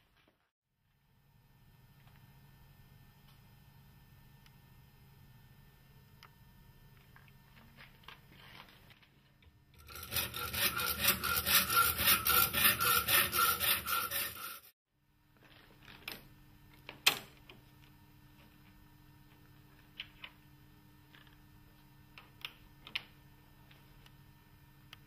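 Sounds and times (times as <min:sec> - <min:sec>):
hacksaw cutting metal: 0:09.8 - 0:14.7.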